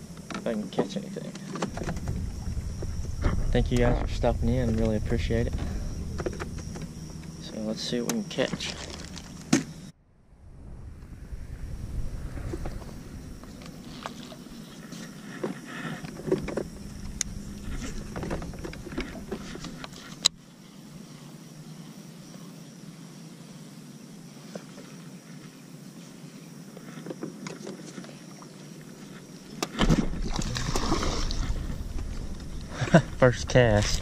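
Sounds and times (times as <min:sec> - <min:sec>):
loud low rush of noise: 0:01.7 - 0:14.6, 0:16.2 - 0:19.8.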